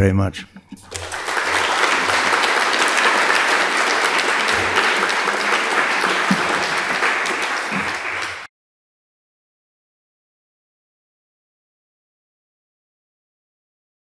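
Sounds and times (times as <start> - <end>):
audience applauding: 0.7 - 8.5.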